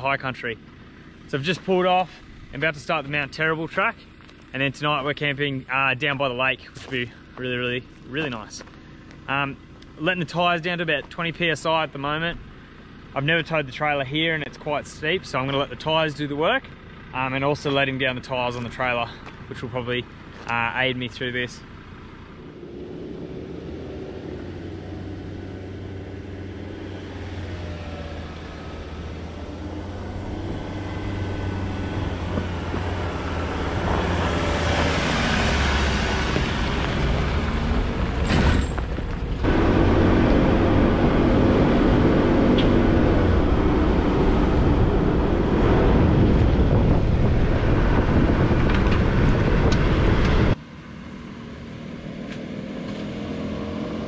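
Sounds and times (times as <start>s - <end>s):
vehicle engine running: 0.0s - 54.0s
tyres on gravel: 0.2s - 12.3s, 13.2s - 22.5s, 24.3s - 41.6s.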